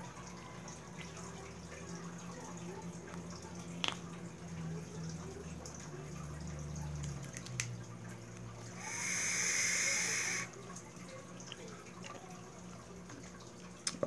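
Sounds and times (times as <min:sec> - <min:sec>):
hiss of liquid vaporising on coil: 0:08.8 - 0:10.5.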